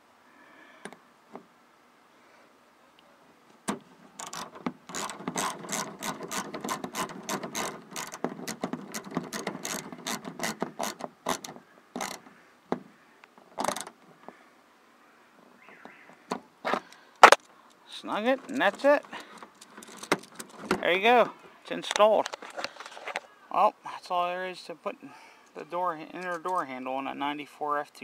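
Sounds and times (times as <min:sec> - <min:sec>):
ratchet clicking: 0:04.2 - 0:12.2.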